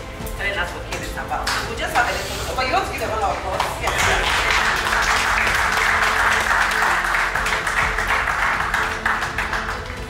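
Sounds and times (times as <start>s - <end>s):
crowd applauding: 3.6s - 10.0s.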